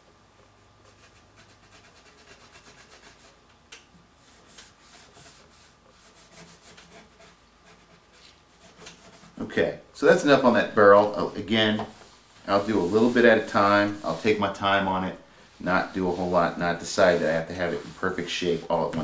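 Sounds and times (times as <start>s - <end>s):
rubbing on steel barrel: 4.2s - 9.6s, 11.2s - 15.0s, 15.6s - 19.0s.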